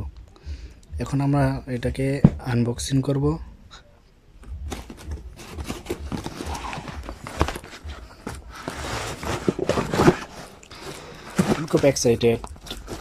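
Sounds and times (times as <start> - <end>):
cardboard flaps rustling: 4.6 - 13.0.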